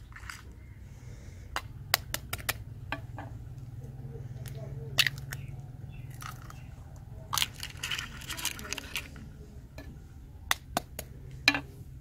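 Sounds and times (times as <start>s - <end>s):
steady low hum: 0.0s - 12.0s
eggshells cracking: 4.4s - 5.5s, 6.1s - 6.7s, 7.3s - 9.3s.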